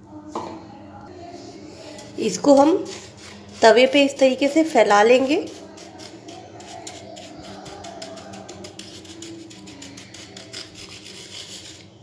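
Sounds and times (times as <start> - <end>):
spatula scraping sugar in pan: 1.9 - 12.0.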